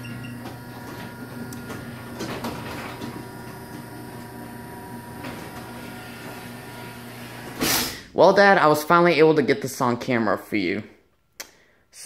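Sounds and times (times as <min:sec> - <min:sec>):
garage door clicks: 0:00.0 - 0:07.8
garage door opener running: 0:00.0 - 0:08.2.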